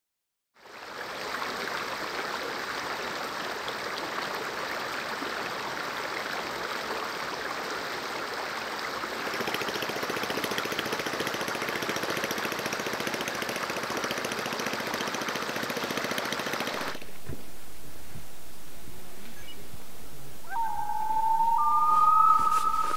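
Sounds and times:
water rushing: 0.8s - 22.9s
dull low rumble: 16.9s - 22.9s.

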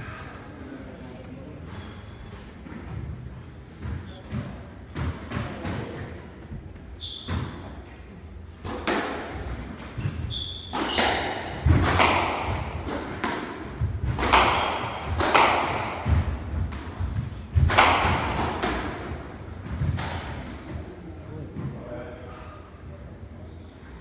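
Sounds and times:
shoes squeaking on wooden floor: 9.9s - 11.7s
squash ball cracking off walls: 10.8s - 18.8s.

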